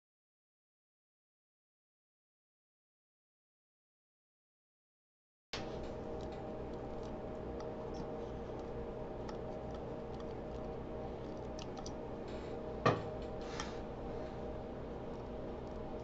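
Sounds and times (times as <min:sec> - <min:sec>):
steady hum: 0:05.6 - 0:16.0.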